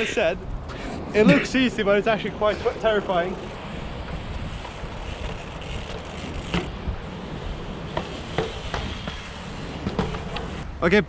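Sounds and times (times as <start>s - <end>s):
wind on microphone: 2.4s - 10.8s
bike tyres rolling over stone: 2.7s - 10.6s
wheels knocking on stone: 3.5s - 10.6s.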